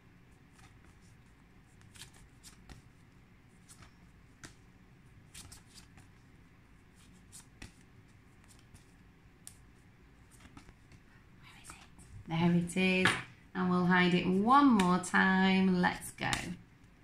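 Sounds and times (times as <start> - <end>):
paper flashcards flicking: 10.3 - 11.0.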